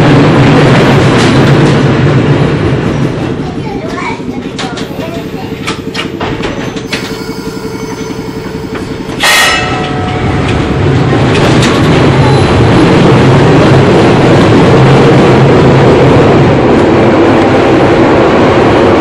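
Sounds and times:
streetcar hum with fast ticking: 0:00.0 - 0:19.0
streetcar running on rails: 0:00.0 - 0:19.0
loud burst with ringing tone: 0:06.8 - 0:10.9.

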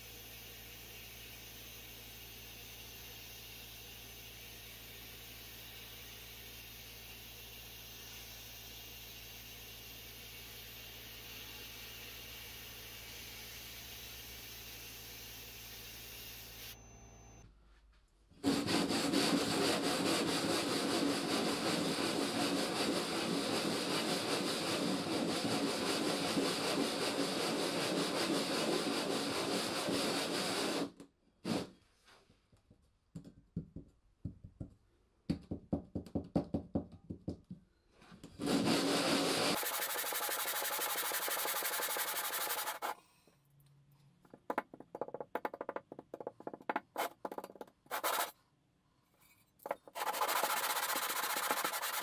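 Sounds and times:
metal scraping on sandpaper: 0:18.4 - 0:30.9, 0:38.4 - 0:43.0, 0:47.0 - 0:48.4, 0:49.6 - 0:52.0.

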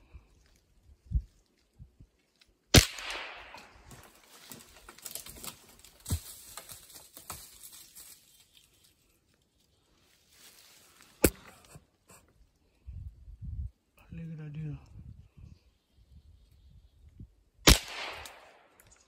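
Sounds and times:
loud sharp gunshot: 0:02.7 - 0:03.7, 0:17.7 - 0:18.6.

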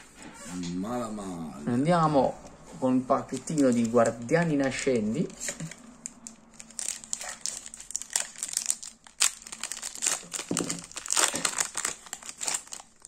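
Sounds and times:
foil wrapper crinkling and tearing: 0:03.3 - 0:13.0.

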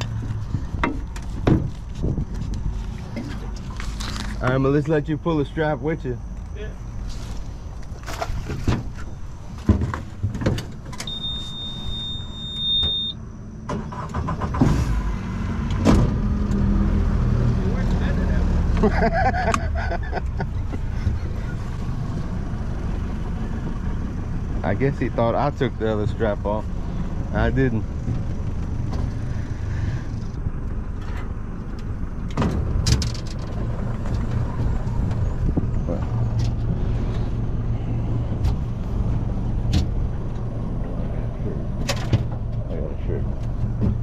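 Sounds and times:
sharp clunks and knocks: 0:00.0 - 0:02.2, 0:08.0 - 0:11.1, 0:32.3 - 0:34.4, 0:43.4 - 0:44.0
high-pitched beep: 0:11.1 - 0:13.2
vehicle engine idling: 0:17.4 - 0:44.0.

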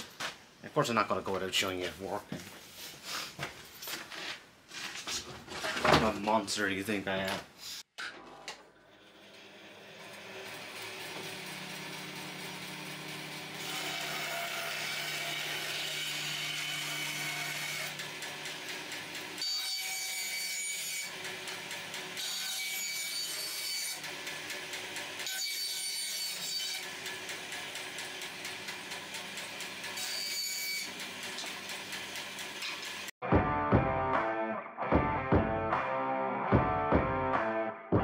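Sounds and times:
bandsaw cutting wood: 0:08.9 - 0:33.1.

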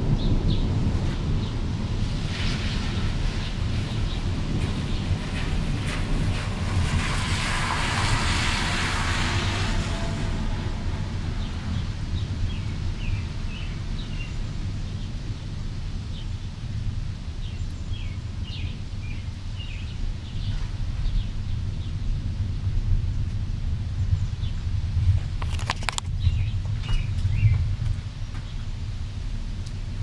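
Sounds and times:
rushing noise: 0:00.0 - 0:14.0
steady low rumble: 0:00.0 - 0:30.0
small birds chirping: 0:26.0 - 0:28.7.

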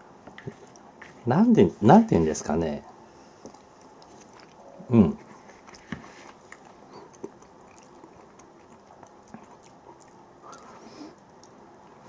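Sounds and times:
person chewing: 0:00.4 - 0:01.2, 0:03.4 - 0:04.6, 0:05.2 - 0:12.0
mouth clicks and smacks: 0:05.6 - 0:11.6.

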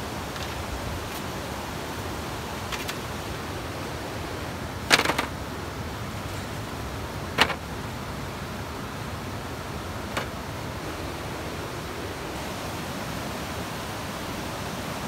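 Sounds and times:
stream rushing: 0:00.0 - 0:15.0
bamboo poles clacking: 0:02.4 - 0:03.4, 0:04.8 - 0:05.4, 0:06.2 - 0:07.8, 0:10.0 - 0:10.8.

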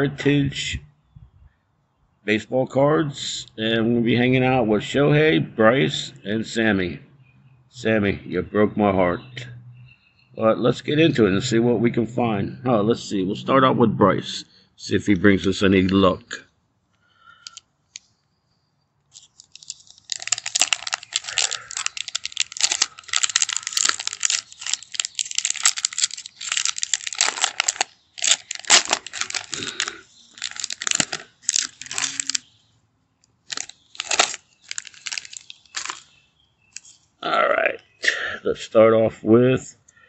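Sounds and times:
plastic wrapper tearing and crinkling: 0:19.1 - 0:32.5, 0:33.4 - 0:36.1, 0:36.7 - 0:37.0.

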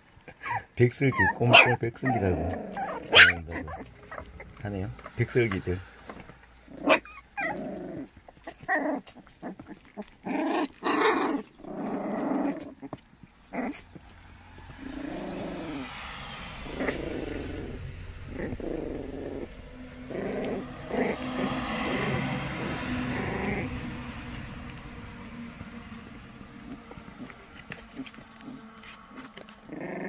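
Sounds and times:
puppies growling: 0:00.0 - 0:30.0
steady low hum: 0:13.4 - 0:29.7.

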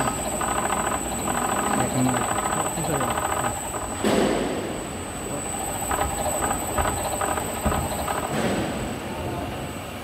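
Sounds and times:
gear teeth squealing and clicking: 0:00.0 - 0:03.9.

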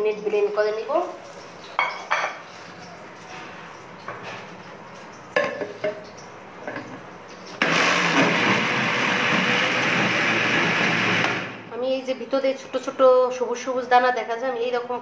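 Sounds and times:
electric blender running: 0:07.6 - 0:11.6.

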